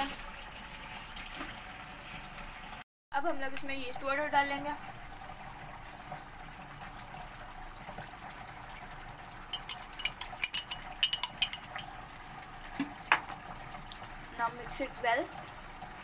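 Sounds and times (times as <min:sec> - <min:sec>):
glass and metal clinks: 0:09.5 - 0:11.8.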